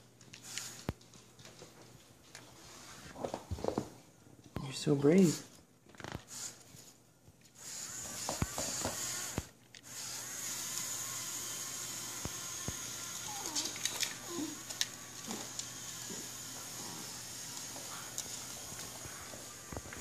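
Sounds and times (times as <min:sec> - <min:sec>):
small electric motors whining: 0:07.5 - 0:20.0.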